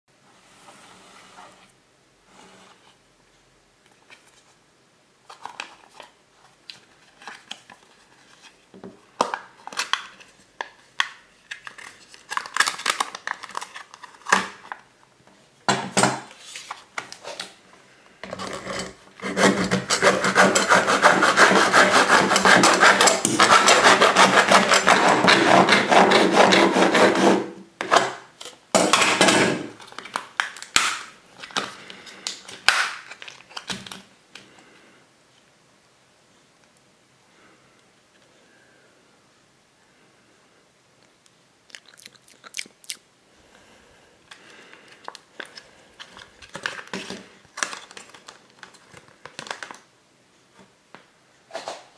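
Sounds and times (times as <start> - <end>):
cut plastic tub scraping and cracking: 18.2 - 34.0
blade sawing through plastic tub: 18.4 - 27.5.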